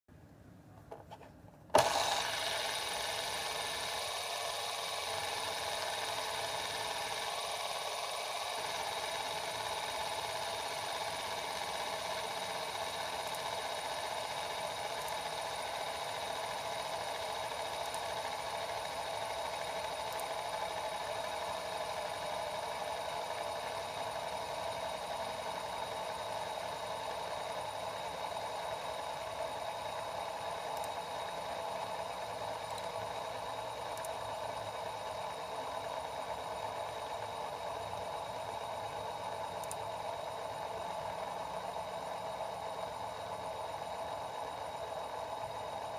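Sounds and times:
fidget spinner whirring: 0.9 - 45.9
fidget spinner click: 1.7 - 25.8, 28.6 - 35.8, 39.2 - 41.8.

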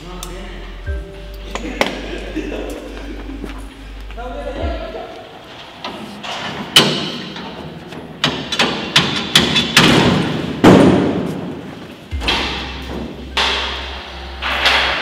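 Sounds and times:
metal gate banging: 5.5 - 11.2, 12.1 - 15.0.

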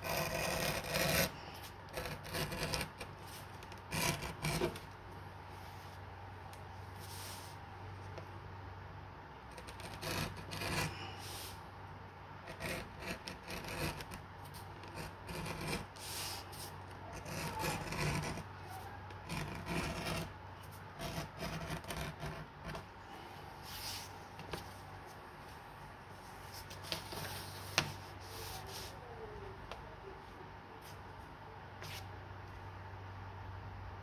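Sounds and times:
blade scraping leather: 0.0 - 4.8, 12.5 - 18.5.

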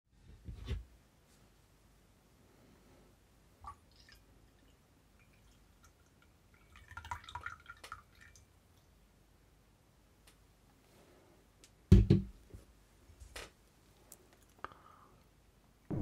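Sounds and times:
coffee trickling into cup: 3.6 - 8.4.

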